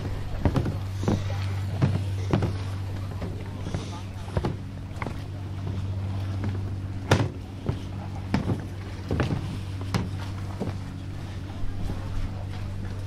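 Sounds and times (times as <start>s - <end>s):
low mechanical hum: 0.0s - 13.0s
knocks and thuds: 0.4s - 5.8s, 6.4s - 10.8s.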